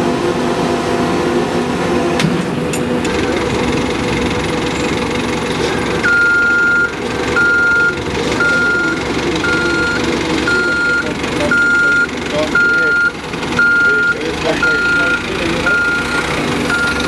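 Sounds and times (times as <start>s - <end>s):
low machinery hum: 0.0s - 17.0s
warning beeper beeping: 6.0s - 17.0s.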